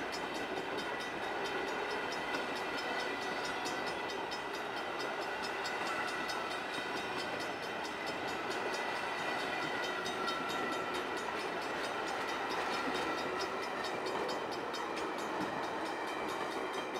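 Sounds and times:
train cars rolling on rails: 0.0s - 16.9s.

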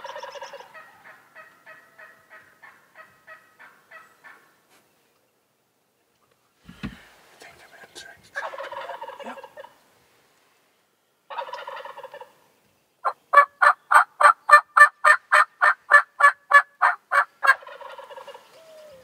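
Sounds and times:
turkey gobbling: 0.0s - 4.5s, 8.4s - 9.8s, 11.3s - 12.4s, 13.0s - 19.0s
turkey yelps: 0.0s - 4.5s, 8.4s - 9.8s, 11.3s - 12.3s, 13.0s - 19.0s.

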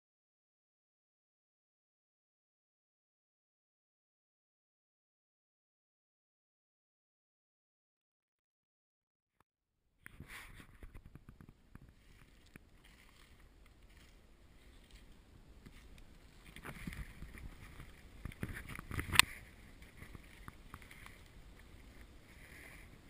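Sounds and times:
branches brushing against camera: 10.1s - 23.0s
twigs snapping and rustling: 10.9s - 22.2s
footsteps in leaf litter: 11.9s - 18.1s.

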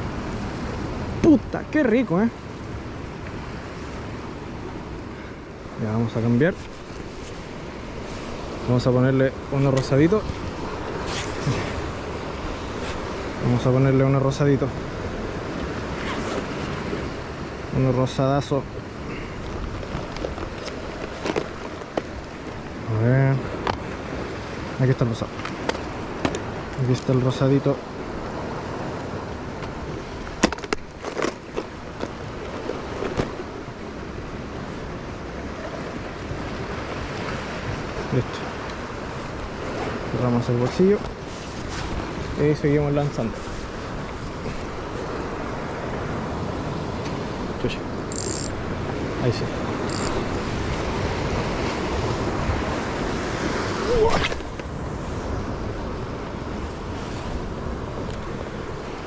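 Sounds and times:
surf: 0.0s - 59.0s
wind: 0.0s - 59.0s
fishing tackle clicks and rustles: 19.4s - 22.6s, 30.3s - 33.4s.

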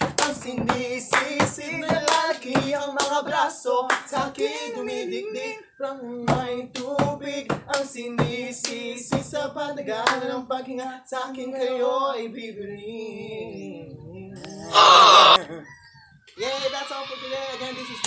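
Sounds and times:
hand claps and slaps: 0.0s - 4.4s, 6.3s - 9.4s, 10.0s - 10.3s
young male voices singing and rapping: 0.0s - 14.8s.

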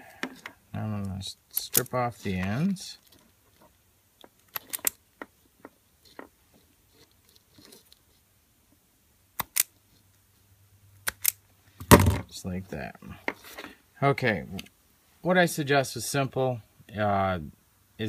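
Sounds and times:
wire stripper clicks and snips: 11.0s - 11.4s.

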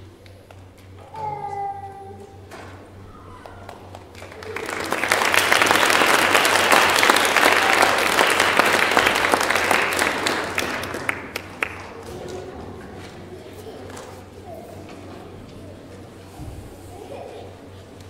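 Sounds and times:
audience applauding: 3.4s - 12.1s.

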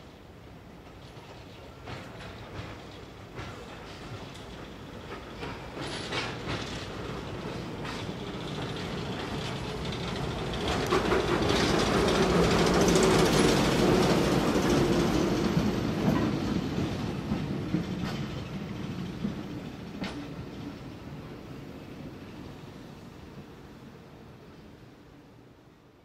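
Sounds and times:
diesel locomotive engine: 0.0s - 26.0s
train wheels clicking over rail joints: 0.7s - 21.4s.

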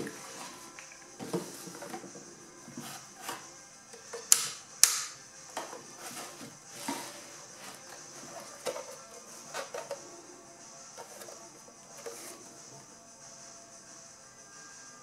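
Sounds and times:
knocks and rustles of handling: 0.0s - 10.2s, 10.9s - 12.9s
sharp plastic clicks: 4.2s - 5.2s.

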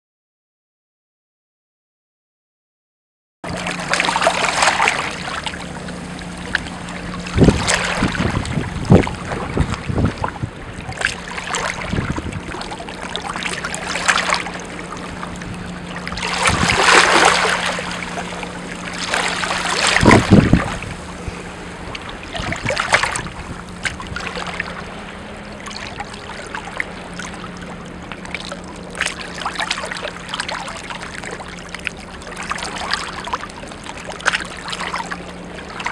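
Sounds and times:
choppy sea water: 3.4s - 35.9s
wind: 3.4s - 35.9s
steady low hum: 3.5s - 35.9s
wind buffeting microphone: 5.1s - 26.2s.

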